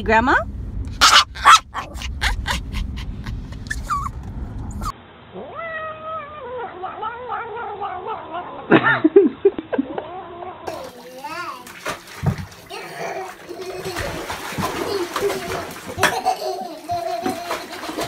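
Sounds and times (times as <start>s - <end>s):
low rumble: 0.0s - 5.2s
cat yowling: 5.4s - 8.6s.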